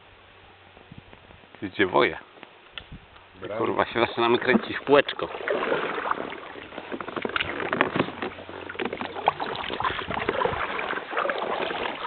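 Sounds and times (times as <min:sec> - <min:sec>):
water and rubbing noise: 0:03.5 - 0:12.0
paddle splashes and knocks: 0:04.2 - 0:12.0.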